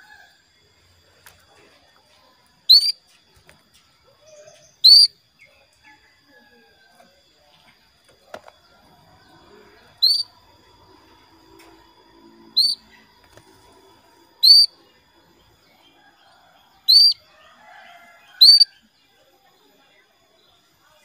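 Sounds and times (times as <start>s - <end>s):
canary short rising calls: 10.0s - 10.3s, 12.5s - 12.9s, 14.4s - 14.8s, 16.9s - 17.2s.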